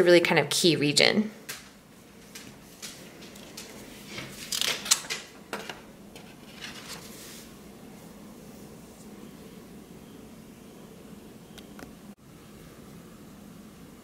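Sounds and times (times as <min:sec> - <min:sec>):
paper rustling: 0:02.3 - 0:07.5.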